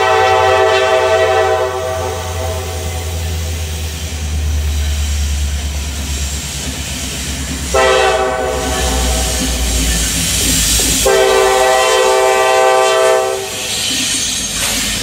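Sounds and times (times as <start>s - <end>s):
train air horn blast: 0.0s - 3.2s, 7.7s - 9.8s, 11.0s - 13.6s
diesel locomotive rumbling: 0.0s - 15.0s.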